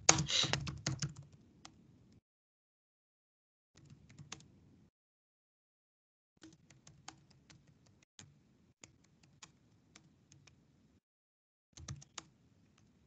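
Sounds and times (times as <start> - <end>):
typing on computer keyboard: 0.0 - 1.8, 3.8 - 4.5, 6.4 - 10.6, 11.8 - 12.9.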